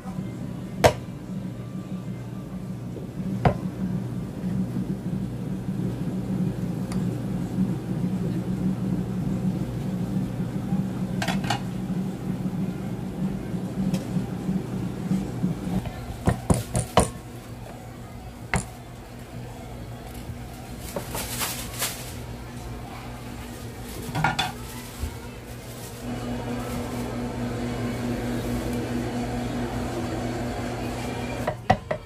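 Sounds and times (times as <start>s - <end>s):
steady low hum: 0.0s - 16.2s.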